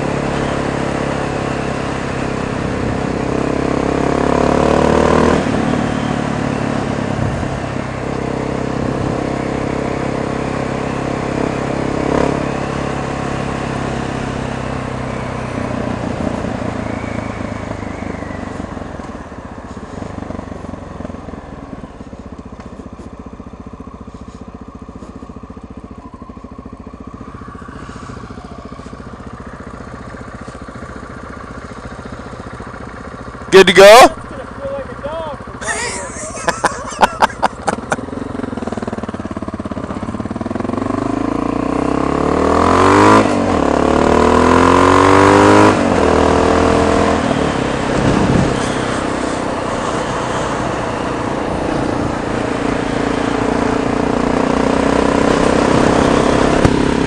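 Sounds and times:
motorcycle engine idling: 0.0s - 4.2s, 5.5s - 42.3s
motorcycle engine accelerating: 0.0s - 57.0s.

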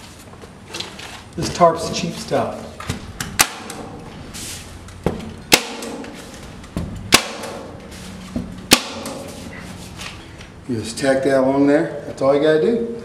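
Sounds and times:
staple gun snapping: 3.2s - 3.8s.

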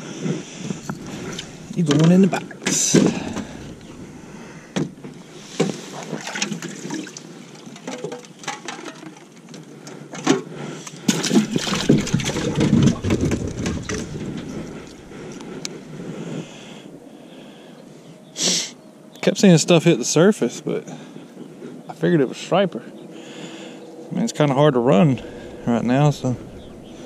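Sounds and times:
water splashing: 0.8s - 8.0s, 11.1s - 15.4s.

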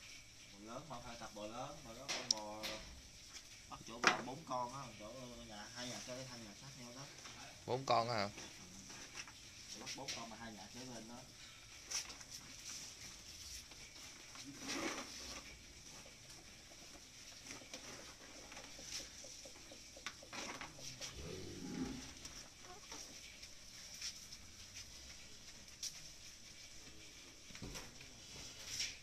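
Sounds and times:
steady high-pitched hiss: 0.0s - 29.0s
chickens clucking: 15.8s - 21.2s.

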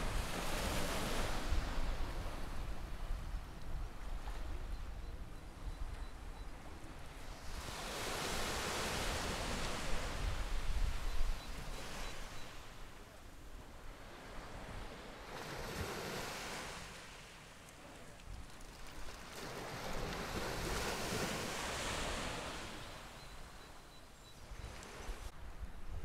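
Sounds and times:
sea waves washing on shore: 0.0s - 3.2s, 6.9s - 23.6s.

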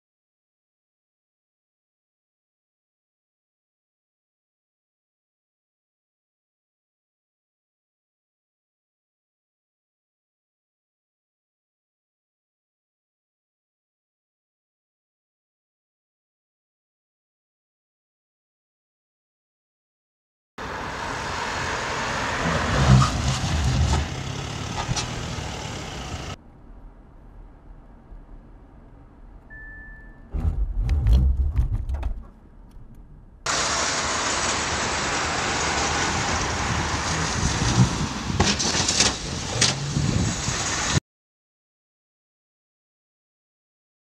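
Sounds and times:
car road noise: 20.6s - 41.0s
low braking rumble: 20.6s - 41.0s
short warning beep: 29.5s - 30.3s.

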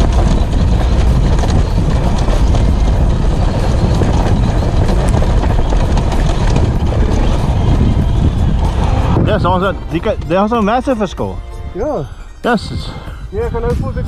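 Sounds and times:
bike knocks and rattles: 0.0s - 9.2s
dirt bike engine running: 0.0s - 11.4s
wind buffeting microphone: 0.0s - 14.0s.

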